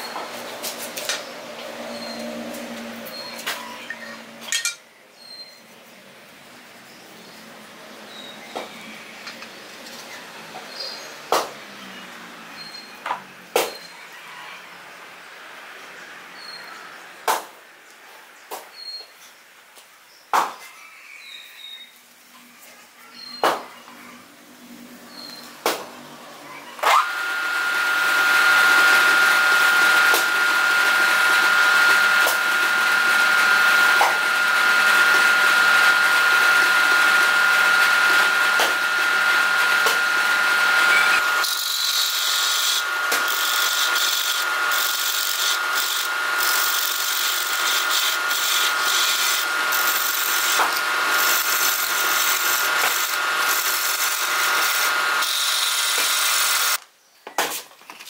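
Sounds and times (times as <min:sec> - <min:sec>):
turning tool cutting wood: 0:26.8 - 0:56.8
wood lathe motor whine: 0:26.8 - 0:56.8
sandpaper rubbing spinning wood: 0:27.0 - 0:56.8.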